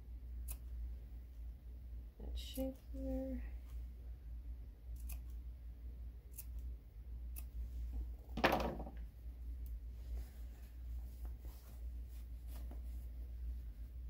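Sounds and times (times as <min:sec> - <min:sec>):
scissors snipping fabric: 0:00.4 - 0:00.7, 0:04.9 - 0:05.4, 0:06.3 - 0:06.7, 0:07.3 - 0:07.6
fabric rustling: 0:10.0 - 0:14.0.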